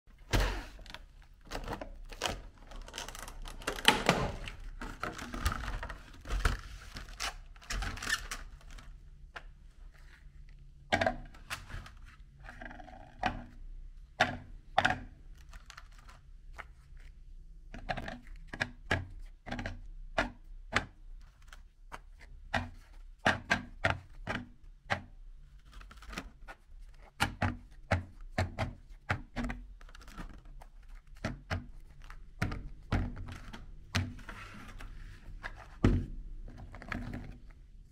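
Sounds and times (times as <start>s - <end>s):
plastic container crackling: 0.1s - 9.0s.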